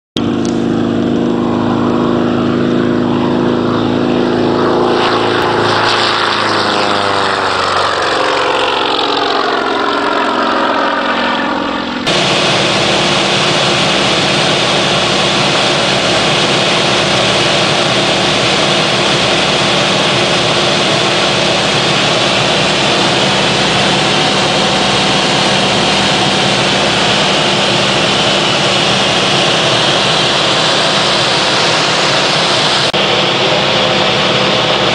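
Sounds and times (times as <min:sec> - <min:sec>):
engine drone inside cockpit: 0:00.2 - 0:34.9
propeller plane passing close: 0:00.2 - 0:34.9
heavy wind noise: 0:11.8 - 0:34.9.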